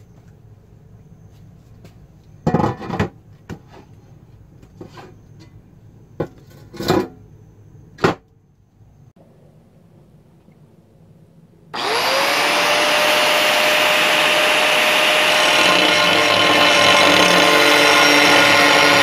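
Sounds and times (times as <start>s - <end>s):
low steady hum: 0.0s - 11.8s.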